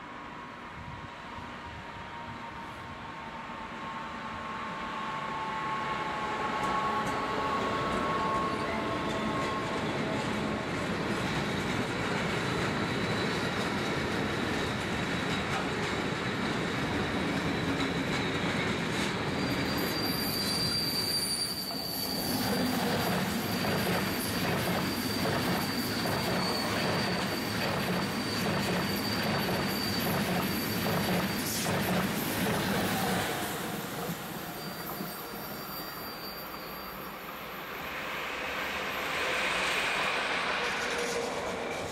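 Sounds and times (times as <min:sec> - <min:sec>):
high-speed train rushing past: 0:00.0 - 0:41.9
high wheel squeal: 0:05.5 - 0:41.9.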